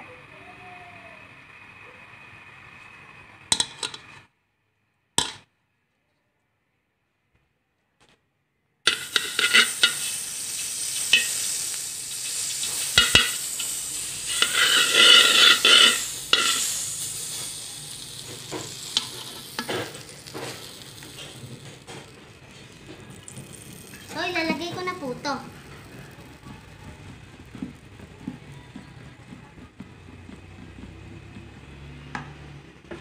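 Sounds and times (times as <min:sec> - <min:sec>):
spoon scraping a pan: 0:08.9 - 0:24.0
butter sizzling in a pan: 0:08.9 - 0:32.5.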